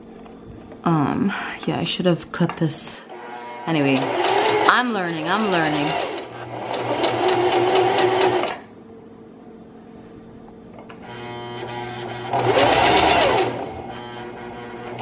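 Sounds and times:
sewing machine stitching: 3.1s - 8.6s, 12.2s - 13.7s.

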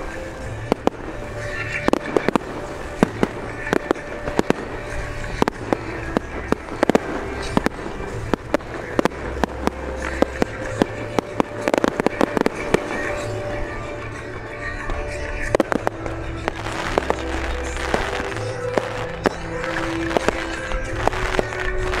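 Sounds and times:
firework shells bursting: 0.0s - 22.0s.

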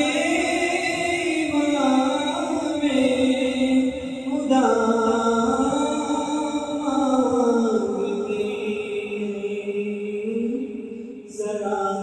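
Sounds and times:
man singing unaccompanied: 0.0s - 12.0s.

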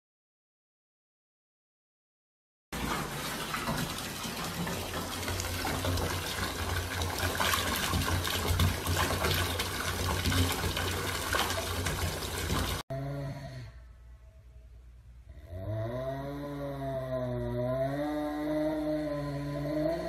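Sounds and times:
water pouring into a bathtub: 2.8s - 12.8s.

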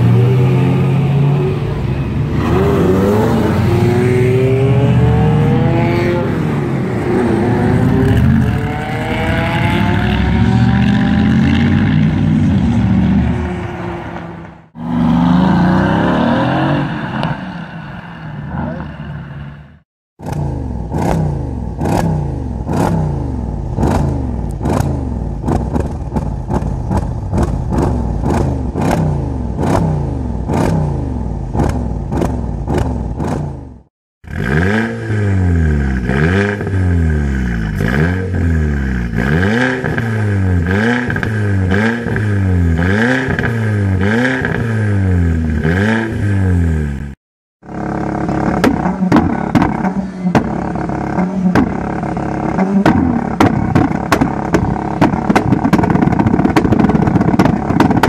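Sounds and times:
car engine revving: 0.0s - 19.6s, 20.2s - 58.0s
exhaust cracks: 20.2s - 35.2s, 45.3s - 58.0s.

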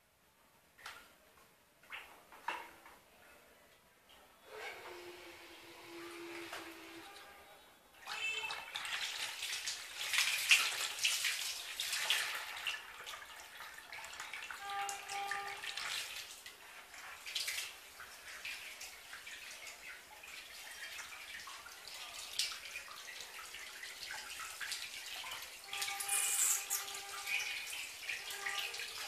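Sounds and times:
water churning in plastic basin: 8.0s - 26.0s.

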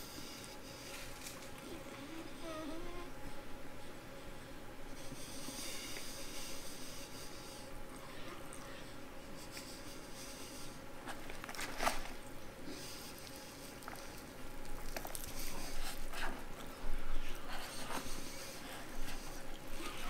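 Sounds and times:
close chewing: 11.0s - 20.0s
crispy breading crackling: 13.2s - 16.8s
meat squishing: 13.2s - 17.5s.

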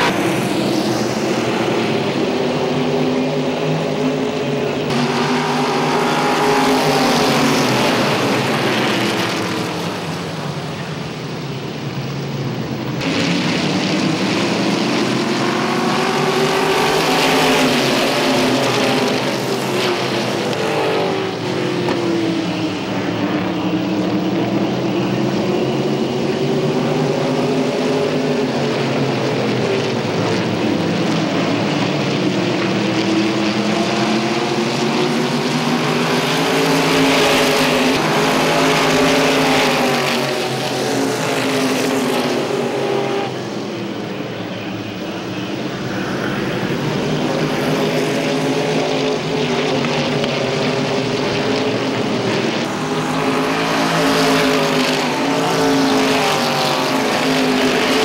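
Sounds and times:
race car engines: 0.0s - 58.0s.

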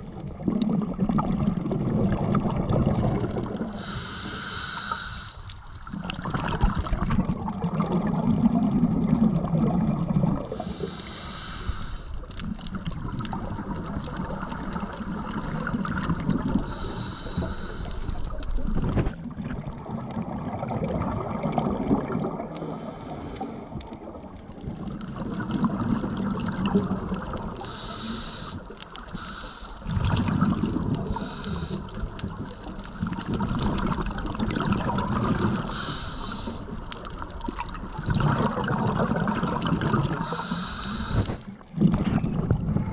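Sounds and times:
exhaled air bubbling: 0.0s - 42.9s
regulator hissing inhale: 3.7s - 5.6s, 10.6s - 12.4s, 16.6s - 18.4s, 22.6s - 23.8s, 27.6s - 29.9s, 31.0s - 32.3s, 35.6s - 36.8s, 40.1s - 41.6s.

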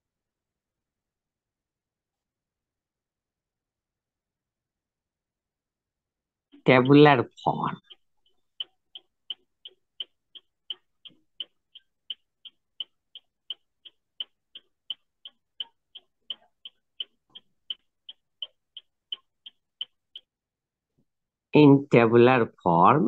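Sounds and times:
faint steady ticking clicks: 6.5s - 20.4s.

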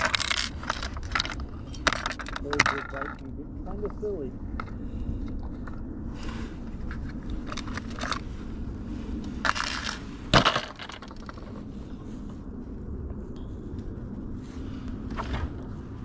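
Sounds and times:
lures rattling in plastic box: 0.0s - 3.2s, 9.4s - 11.5s.

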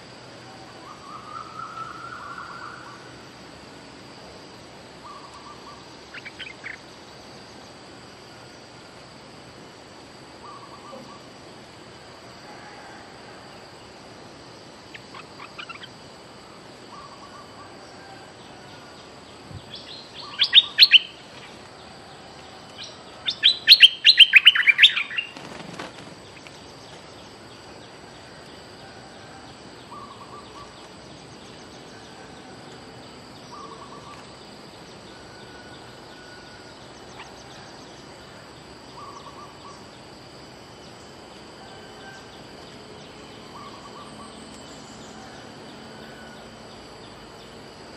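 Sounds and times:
bird rapid chattering: 14.9s - 15.9s.

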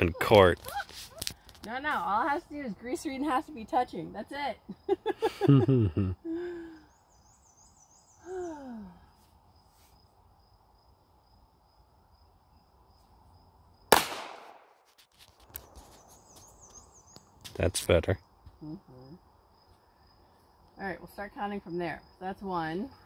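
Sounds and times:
insects chirping: 0.0s - 23.0s
pistol shot: 13.9s - 14.8s.

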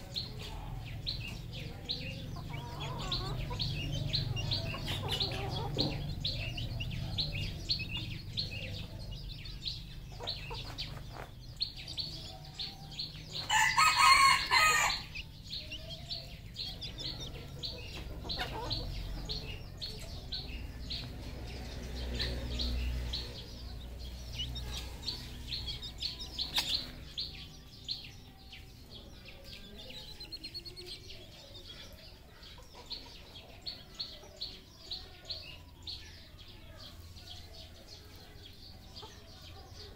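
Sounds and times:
chickens clucking: 0.0s - 39.9s
chicks chirping: 0.0s - 39.9s
rooster crowing: 13.5s - 15.2s.

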